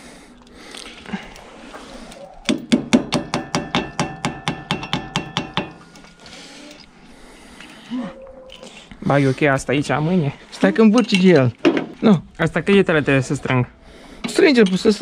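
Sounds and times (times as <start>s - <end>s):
hammer striking steel: 2.5s - 6.0s.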